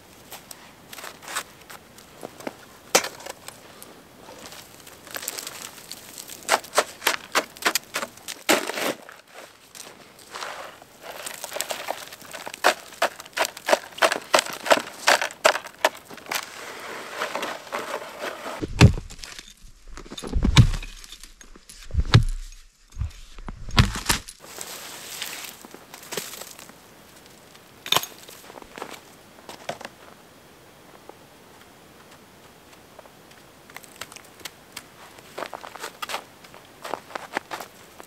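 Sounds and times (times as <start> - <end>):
shovel crunching and scraping snow: 0.3 - 26.7
dead branches cracking: 4.4 - 8.7
heavy low thumps: 18.6 - 19.2, 19.8 - 21.0, 21.8 - 24.1.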